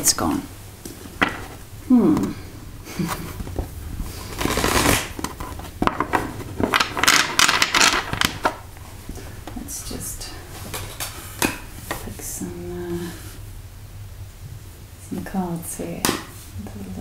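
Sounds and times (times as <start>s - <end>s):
cards being riffle-shuffled: 3.0s - 8.6s.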